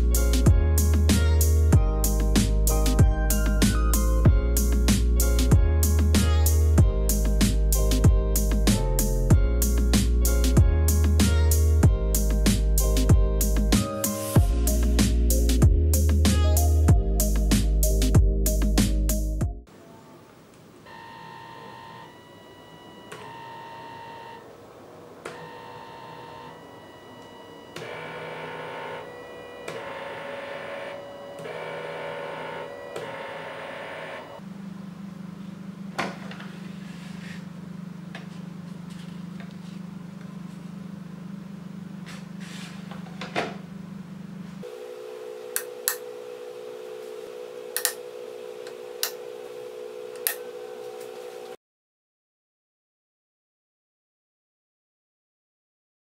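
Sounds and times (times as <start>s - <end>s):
stepper motors whining: 20.9s - 34.4s
steady low hum: 24.4s - 51.5s.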